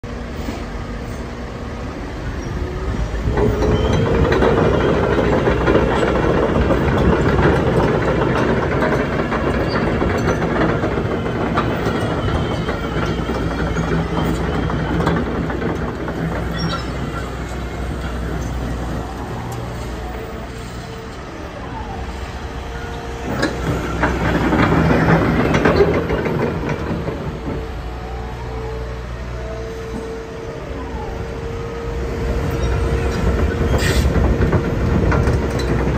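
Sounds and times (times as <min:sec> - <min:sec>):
excavator engine and hydraulics: 0:00.0 - 0:35.9.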